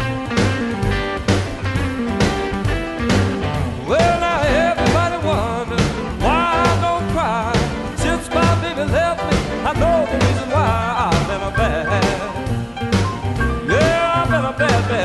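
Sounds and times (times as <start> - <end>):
bass: 0.0 - 15.0
drums: 0.0 - 15.0
electric guitar: 0.0 - 15.0
person singing with vibrato: 3.8 - 12.5, 13.5 - 15.0.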